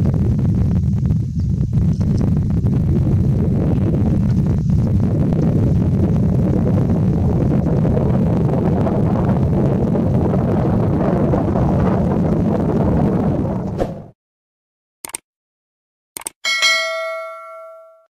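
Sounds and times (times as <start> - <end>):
loud low rumbling: 0.0 - 14.2.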